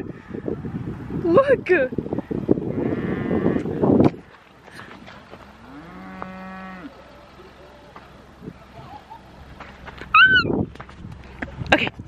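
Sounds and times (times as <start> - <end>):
wind buffeting microphone: 0.0 - 6.3, 8.2 - 12.0
cow mooing: 2.7 - 3.7, 5.6 - 7.0.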